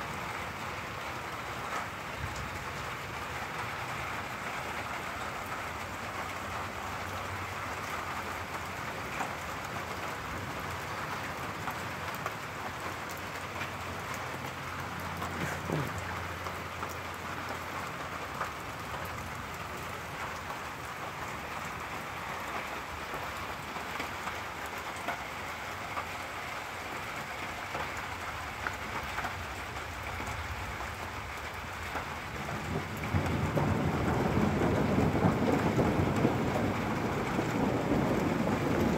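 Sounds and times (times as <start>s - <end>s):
steady rain: 0.0s - 38.9s
thunder rumbling: 32.2s - 38.9s.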